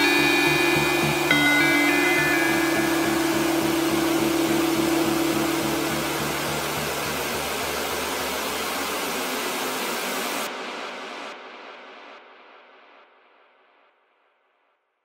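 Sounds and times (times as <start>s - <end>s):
held low tone: 0.0s - 8.9s
faint low pulsing: 0.0s - 10.1s.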